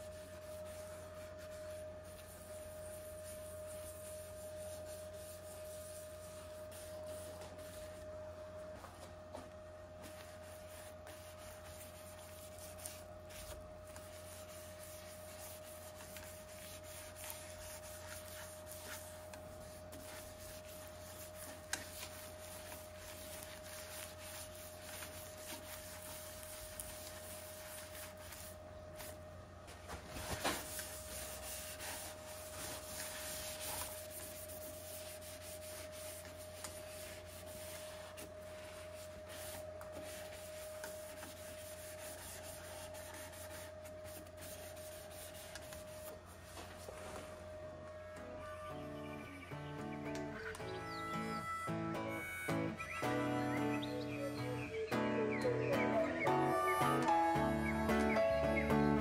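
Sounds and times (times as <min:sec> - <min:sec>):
faint hum: 0:00.0 - 0:59.0
cloth rubbing wooden bowl: 0:10.1 - 0:29.1, 0:30.6 - 0:45.4.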